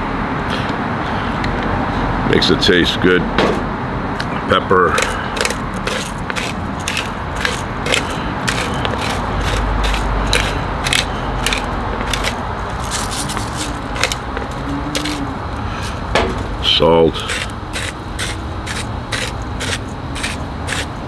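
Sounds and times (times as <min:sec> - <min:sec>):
pepper grinder crunching peppercorns: 0:04.9 - 0:21.0.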